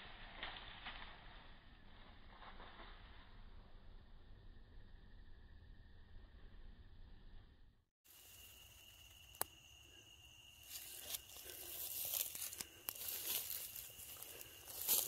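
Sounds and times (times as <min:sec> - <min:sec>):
footsteps rustling through grass: 0:10.6 - 0:15.0.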